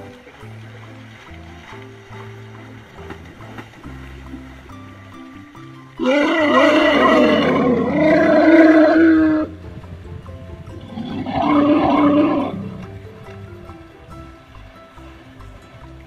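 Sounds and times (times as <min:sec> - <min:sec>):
soft background music: 0:00.0 - 0:16.0
elephant trumpeting: 0:06.0 - 0:09.5, 0:10.9 - 0:12.9.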